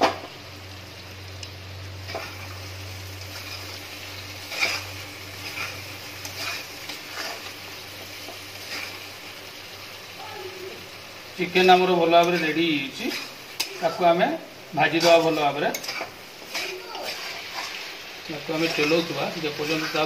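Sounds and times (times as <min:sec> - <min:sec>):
chicken sizzling in a pan: 0:00.0 - 0:20.0
spatula scraping a pan: 0:02.0 - 0:02.6, 0:03.2 - 0:09.2, 0:12.0 - 0:14.2, 0:14.8 - 0:20.0.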